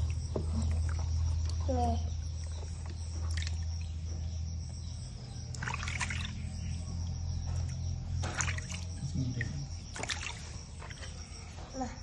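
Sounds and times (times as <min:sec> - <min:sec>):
steady low hum: 0:00.0 - 0:12.0
bath water splashing: 0:02.5 - 0:04.0, 0:05.5 - 0:06.6, 0:07.6 - 0:11.3.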